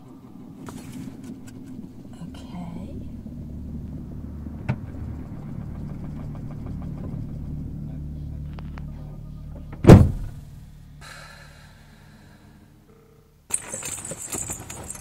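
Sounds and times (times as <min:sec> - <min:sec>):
car engine idling: 0:00.0 - 0:15.0
car bonnet slammed shut: 0:09.8 - 0:10.4.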